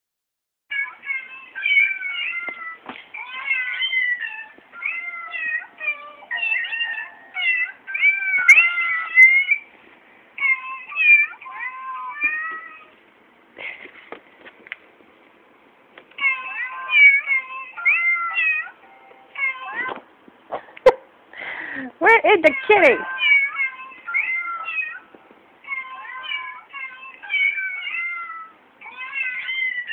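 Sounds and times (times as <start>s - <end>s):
kittens meowing: 0.7s - 9.6s, 22.4s - 29.9s
soft clicks and rustles: 13.6s - 15.3s.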